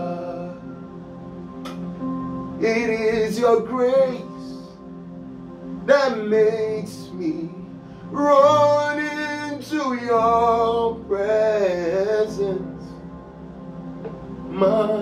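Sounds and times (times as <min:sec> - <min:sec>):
man singing: 0:00.0 - 0:00.8, 0:02.6 - 0:04.7, 0:05.9 - 0:12.9, 0:14.5 - 0:15.0
electronic keyboard chords: 0:00.0 - 0:15.0.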